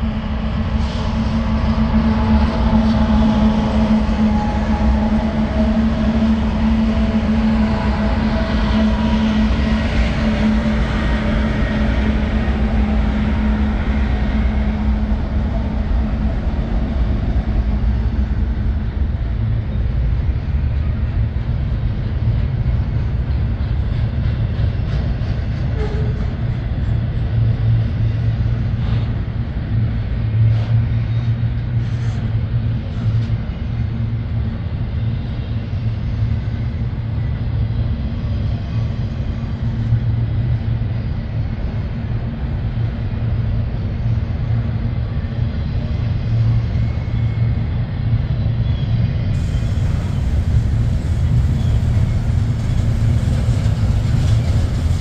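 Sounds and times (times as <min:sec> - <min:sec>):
diesel locomotives droning: 0:00.0 - 0:55.0
train wheels rumbling on rail: 0:00.0 - 0:55.0.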